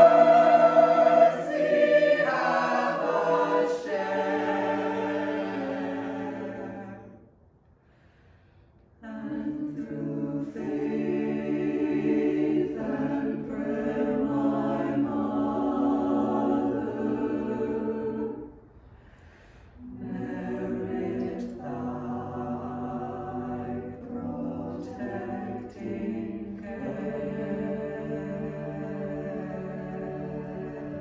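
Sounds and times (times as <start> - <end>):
choir singing a cappella: 0.0 - 7.3, 9.0 - 31.0.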